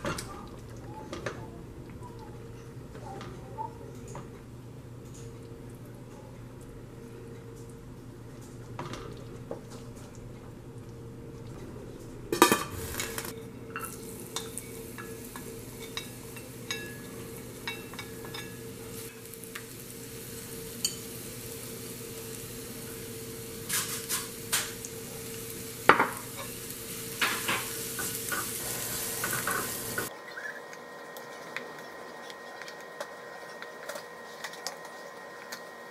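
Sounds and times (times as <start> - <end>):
garlic sizzling in oil: 12.4 - 35.9.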